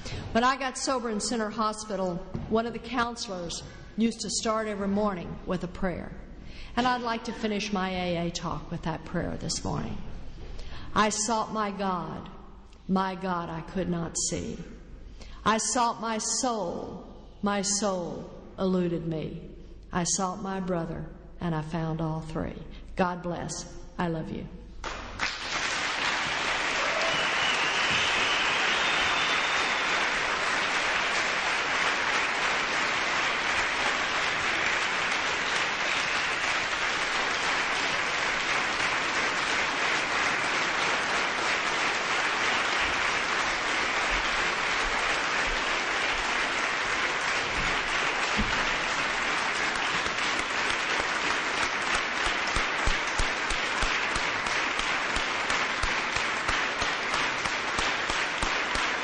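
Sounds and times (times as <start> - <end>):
audience applauding: 24.8 - 59.0.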